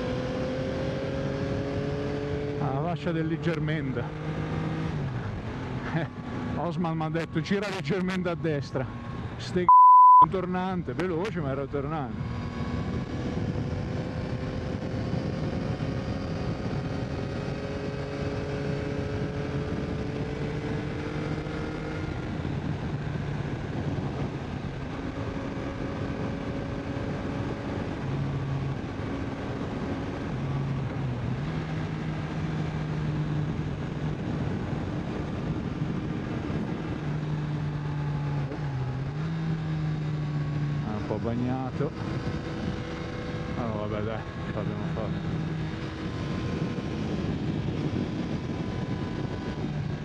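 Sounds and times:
motorcycle engine running: 0:12.2 - 0:50.0.

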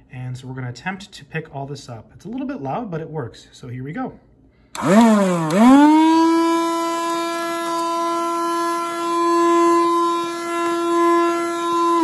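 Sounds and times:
handheld vacuum motor whine: 0:04.8 - 0:12.0.

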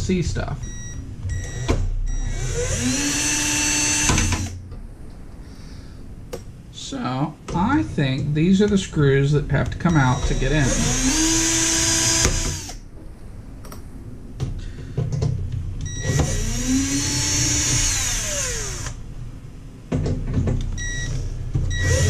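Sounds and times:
drill motor whirring: 0:01.4 - 0:04.6, 0:10.0 - 0:12.8, 0:15.9 - 0:19.0, 0:20.8 - 0:22.0.

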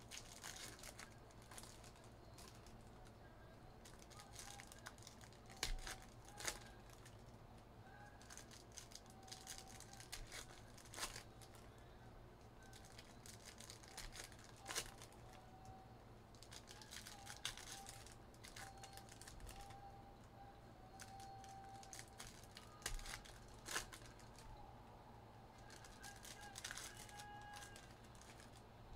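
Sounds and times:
foil packs tearing and crinkling: 0:00.0 - 0:02.8, 0:03.8 - 0:07.2, 0:08.2 - 0:11.7, 0:12.6 - 0:15.3, 0:16.4 - 0:19.8, 0:21.0 - 0:24.4, 0:25.6 - 0:28.6.

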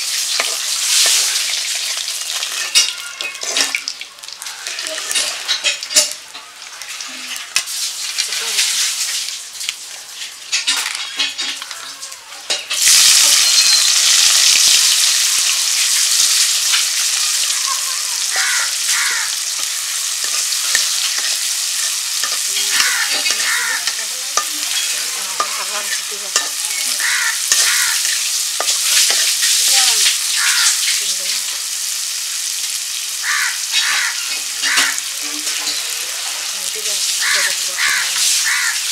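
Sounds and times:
onions sizzling in hot oil: 0:00.0 - 0:38.9
metal spatula scraping iron pan: 0:19.6 - 0:30.1.

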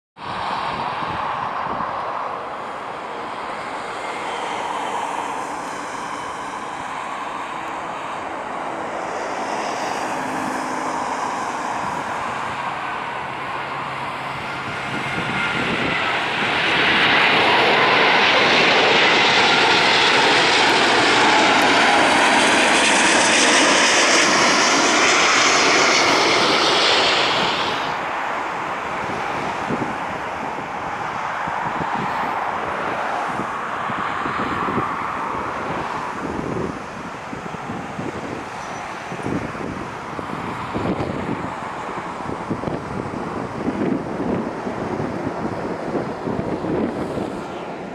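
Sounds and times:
jet engine rumble and whine: 0:00.2 - 0:47.9.

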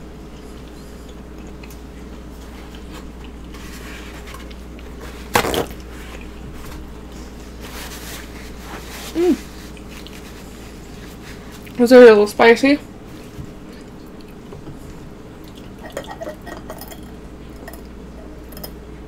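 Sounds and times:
low steady hum: 0:00.0 - 0:19.0
faint chewing: 0:00.2 - 0:11.8, 0:13.2 - 0:18.0
paper towel ripping: 0:05.2 - 0:06.0.

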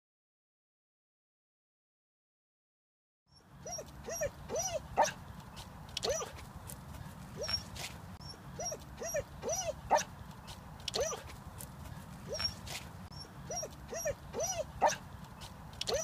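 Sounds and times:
dog whining: 0:03.6 - 0:05.2, 0:06.0 - 0:06.3, 0:07.4 - 0:10.1, 0:11.0 - 0:11.2, 0:12.3 - 0:15.0.

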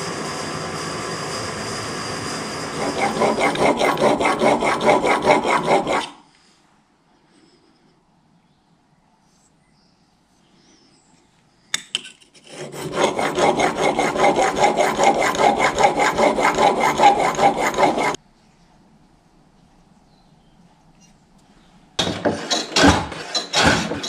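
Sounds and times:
tool rasping across wood: 0:02.4 - 0:06.2, 0:12.4 - 0:18.2, 0:22.0 - 0:24.0.

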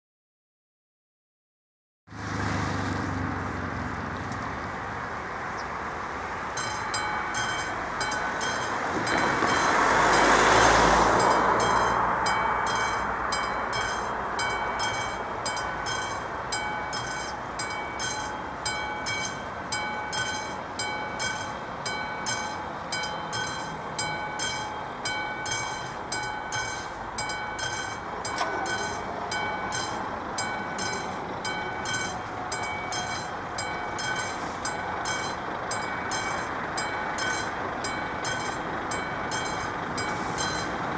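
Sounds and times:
car driving past: 0:02.1 - 0:05.1, 0:08.6 - 0:14.5
level crossing bell ringing: 0:06.6 - 0:10.4, 0:11.1 - 0:40.8.

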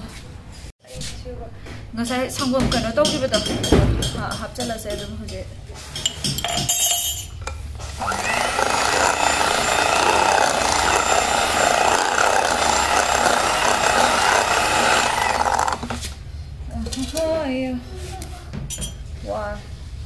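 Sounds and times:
electric hand mixer running: 0:07.8 - 0:16.0.

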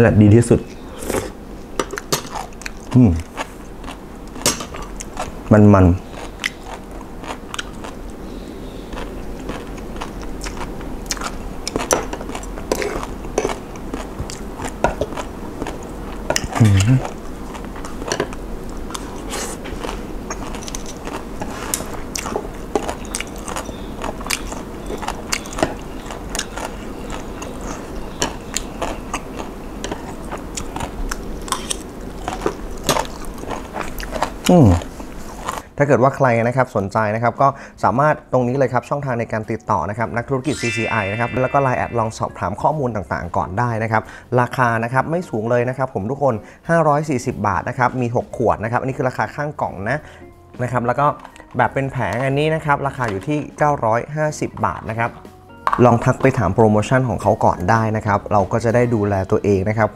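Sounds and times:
chewing with crunches: 0:01.0 - 0:35.7
appreciative hum: 0:12.5 - 0:20.6.

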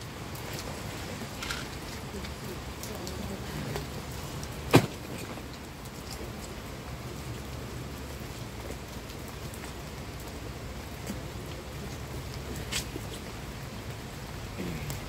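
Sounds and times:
light rain pattering: 0:00.0 - 0:15.0
backpack thump on tarmac: 0:04.7 - 0:05.1.

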